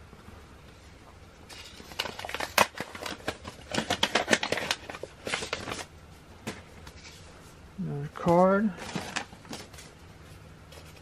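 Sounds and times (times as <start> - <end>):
packaging crinkling and crackling: 1.5 - 5.9, 8.7 - 10.0
packaging clicks: 1.6 - 5.9.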